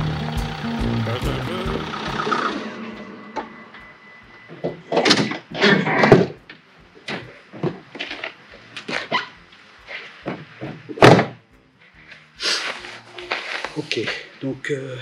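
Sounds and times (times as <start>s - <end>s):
footsteps on frozen snow: 12.1s - 14.4s.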